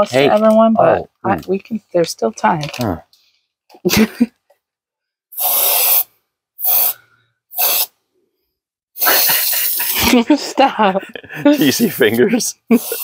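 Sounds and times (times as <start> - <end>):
aerosol spray can hissing: 5.3 - 8.0, 9.0 - 10.0, 12.7 - 13.0.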